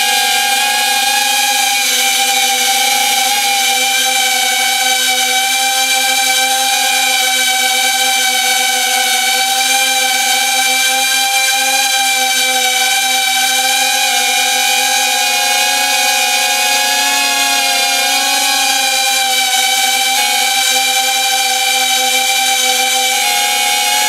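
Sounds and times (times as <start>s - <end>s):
drone motors buzzing whine: 0.0s - 24.0s.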